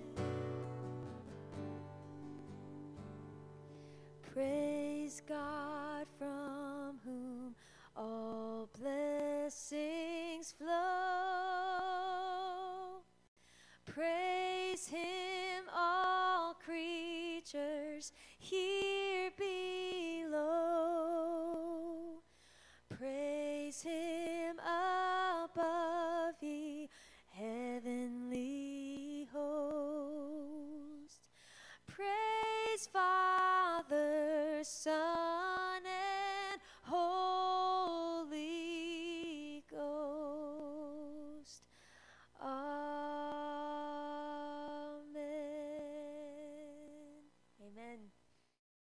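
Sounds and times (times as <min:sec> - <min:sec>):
singer breathing: 0:03.6 - 0:04.2, 0:07.6 - 0:08.0, 0:13.4 - 0:13.9, 0:18.1 - 0:18.4, 0:22.2 - 0:22.9, 0:26.9 - 0:27.3, 0:31.3 - 0:31.9, 0:36.6 - 0:36.9, 0:41.6 - 0:42.4
woman singing unaccompanied: 0:04.2 - 0:13.0, 0:13.9 - 0:22.2, 0:22.9 - 0:31.2, 0:31.9 - 0:41.7, 0:42.4 - 0:48.1.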